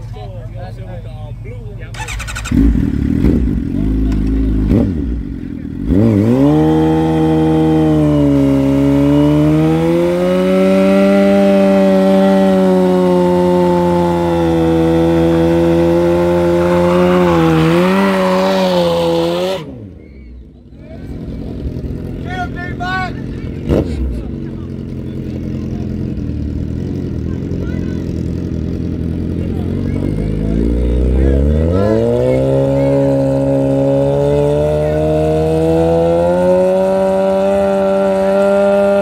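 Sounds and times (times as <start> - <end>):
motorcycle engine revving: 1.4 - 39.0.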